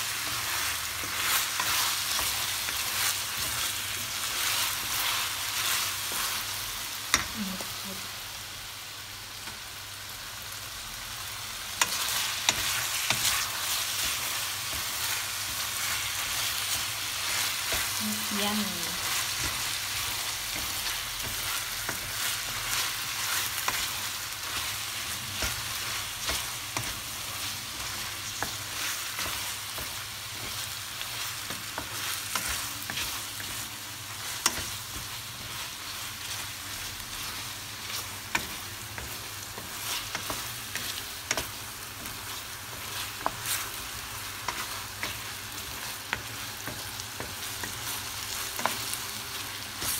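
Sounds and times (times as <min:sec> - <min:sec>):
chicken sizzling in a pan: 0:00.0 - 0:49.9
wooden spoon scraping a pan: 0:11.8 - 0:49.1.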